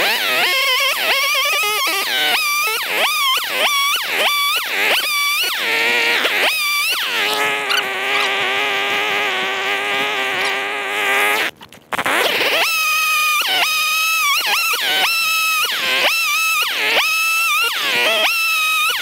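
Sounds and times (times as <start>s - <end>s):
electric chainsaw cutting wood: 0.0s - 19.0s.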